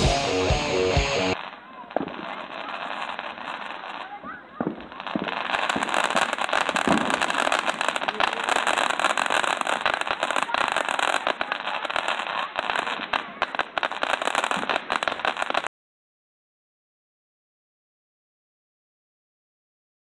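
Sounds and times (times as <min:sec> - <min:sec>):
firework hissing and crackling: 0:01.0 - 0:15.7.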